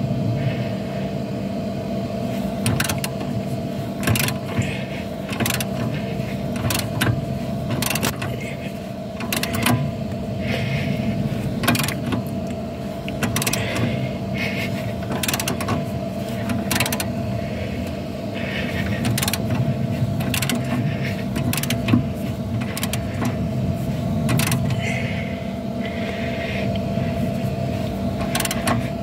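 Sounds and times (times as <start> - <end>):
steady low hum: 0.0 - 29.0
hand ratchet clicking: 2.6 - 3.3, 4.0 - 4.7, 5.3 - 8.4, 9.2 - 9.9, 11.6 - 12.4, 13.0 - 14.0, 15.0 - 15.8, 16.4 - 17.1, 18.9 - 23.4, 24.2 - 24.8, 28.2 - 28.8.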